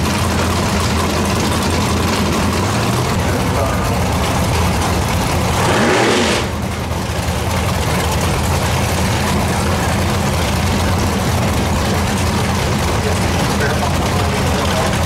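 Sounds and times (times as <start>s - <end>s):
low rumbling engine idle: 0.0s - 15.0s.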